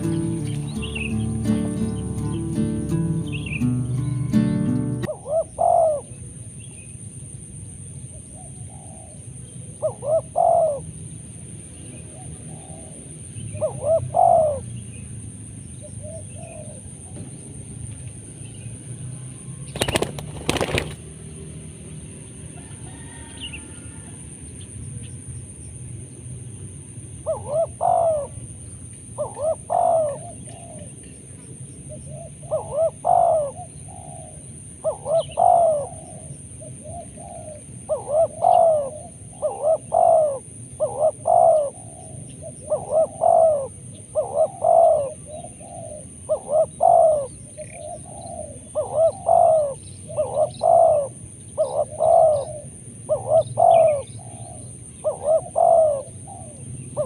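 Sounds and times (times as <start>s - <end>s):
dove cooing: 0.0s - 6.2s, 8.4s - 10.9s, 12.1s - 14.7s, 15.8s - 17.2s, 19.7s - 21.1s, 22.6s - 24.1s, 27.2s - 28.5s, 29.2s - 31.2s, 31.9s - 57.0s.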